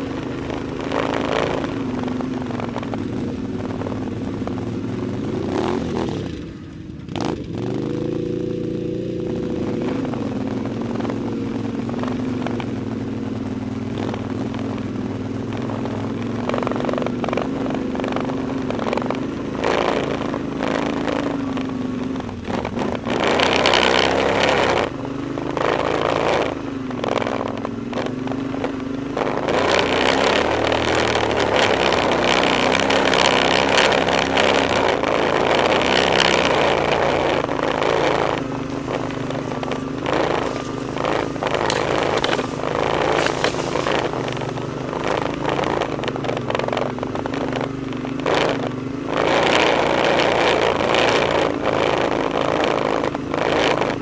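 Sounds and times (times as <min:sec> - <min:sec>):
atv engine running: 0:00.0 - 0:54.0
loud rushing noise: 0:37.8 - 0:45.6.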